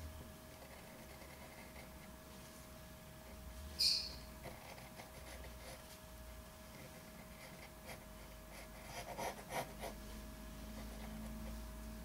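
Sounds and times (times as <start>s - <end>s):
pen scratching on paper: 0.6s - 2.0s, 4.4s - 5.8s, 6.7s - 10.0s.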